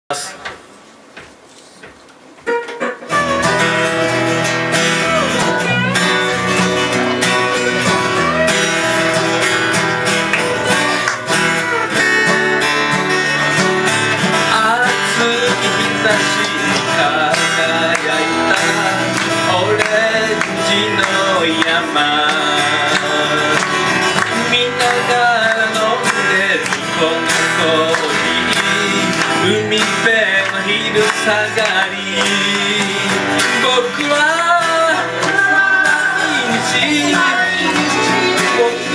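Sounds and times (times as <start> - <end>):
band playing guitars: 2.4 - 38.9.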